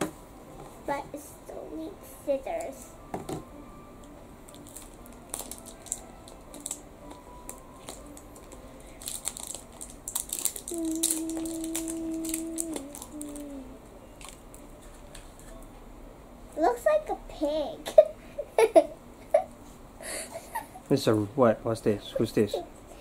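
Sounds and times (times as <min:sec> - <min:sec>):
plastic wrap crinkling: 0:04.5 - 0:13.6, 0:14.2 - 0:15.6.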